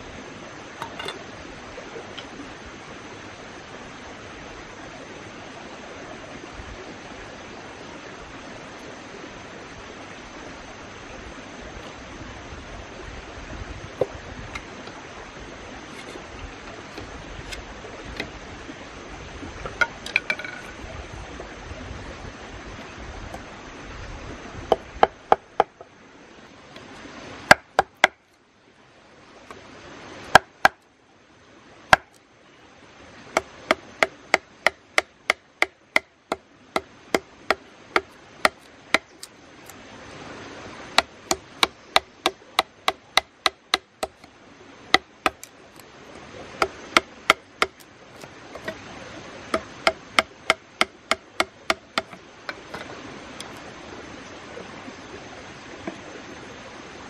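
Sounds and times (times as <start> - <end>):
knife chopping bamboo: 27.5 - 28.2, 30.3 - 30.8, 31.9 - 32.2, 33.4 - 39.8, 41.0 - 44.3, 44.9 - 45.5, 46.6 - 48.8, 49.5 - 53.6.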